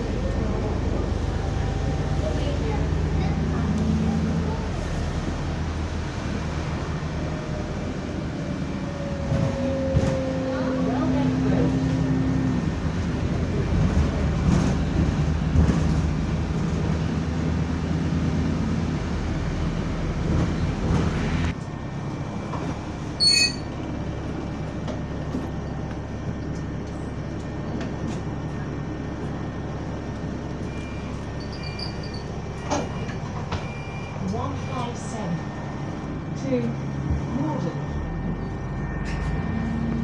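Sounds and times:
bus engine and fan drone: 0:00.0 - 0:40.0
bus bell ding: 0:37.4 - 0:40.0.

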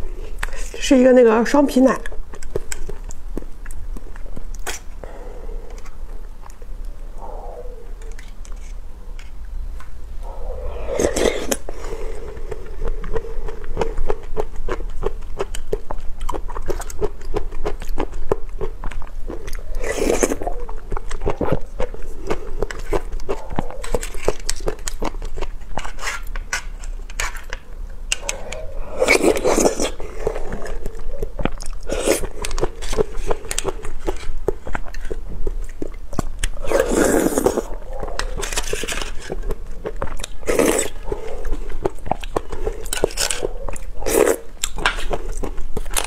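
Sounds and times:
wet mouth clicks eating: 0:10.2 - 0:26.5, 0:27.4 - 0:46.0
spoon scraping foil cup: 0:25.7 - 0:27.5.

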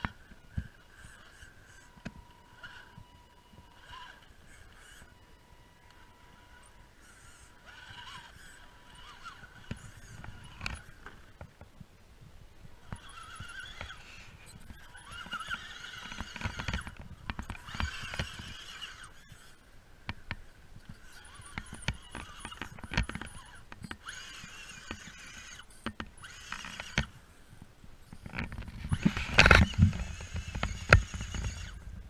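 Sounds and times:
electric motor whining: 0:00.0 - 0:11.5, 0:12.7 - 0:32.0.

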